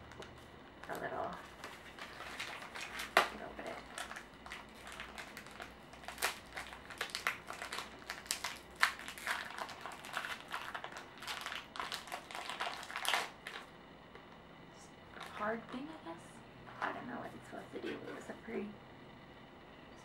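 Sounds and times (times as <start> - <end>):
packet crinkling and tearing: 0.1 - 13.7.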